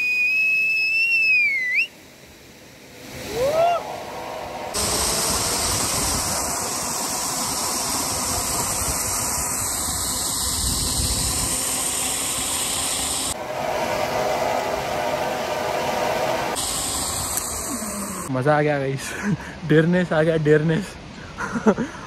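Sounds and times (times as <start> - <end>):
wind buffeting microphone: 4.8 - 11.9.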